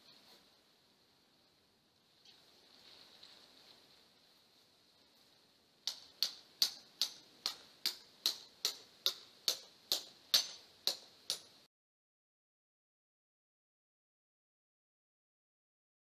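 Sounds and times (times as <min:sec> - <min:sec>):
hammer striking tent peg: 0:05.8 - 0:11.6.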